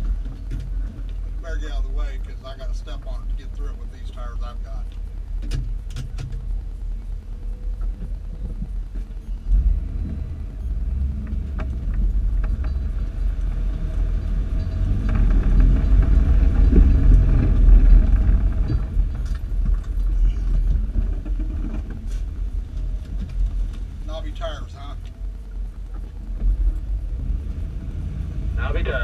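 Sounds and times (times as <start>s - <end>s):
engine tyres and wind rumble: 0.0s - 29.0s.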